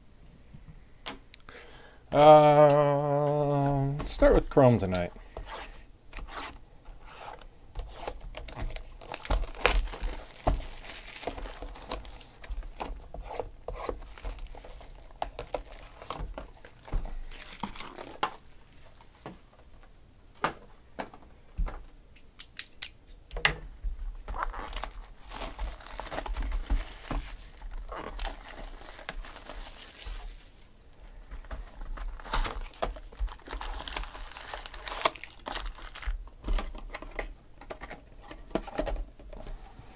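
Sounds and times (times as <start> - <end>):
plastic wrap crinkling and tearing: 7.3 - 19.1, 24.2 - 30.7, 31.4 - 37.3.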